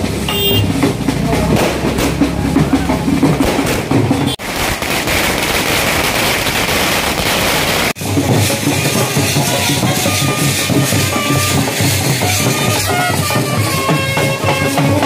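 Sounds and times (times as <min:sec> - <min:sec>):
drumming: 0:00.0 - 0:15.0
crowd voices: 0:00.8 - 0:04.4, 0:08.5 - 0:15.0
band music: 0:08.0 - 0:15.0.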